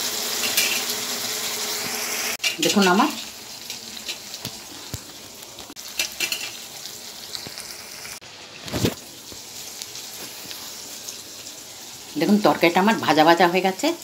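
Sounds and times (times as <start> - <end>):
vegetables sizzling in oil: 0.0 - 14.0.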